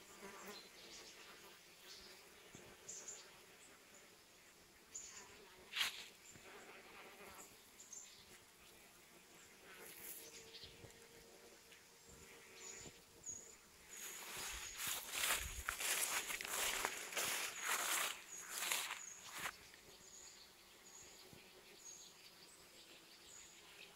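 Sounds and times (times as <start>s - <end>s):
bees buzzing: 9.0s - 19.8s
rustling: 13.9s - 19.5s.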